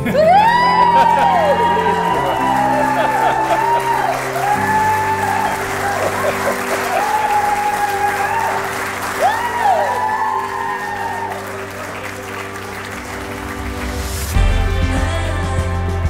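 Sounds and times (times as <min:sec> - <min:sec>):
person whooping: 0:00.0 - 0:12.0
background music: 0:00.0 - 0:16.0
crowd applauding and cheering: 0:00.0 - 0:16.0.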